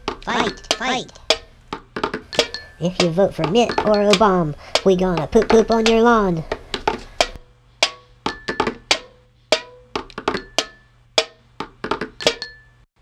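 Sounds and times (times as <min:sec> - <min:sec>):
drum strikes with ringing tone: 0:07.2 - 0:11.4, 0:12.0 - 0:12.8.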